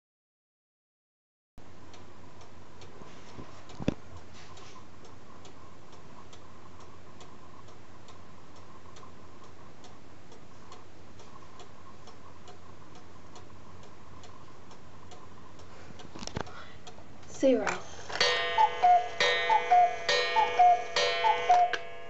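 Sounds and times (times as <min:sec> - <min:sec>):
clock ticking: 0:16.8 - 0:22.0.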